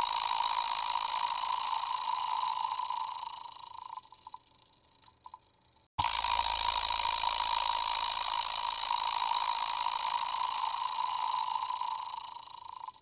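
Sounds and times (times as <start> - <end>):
bicycle chain rattling: 0.0 - 13.0.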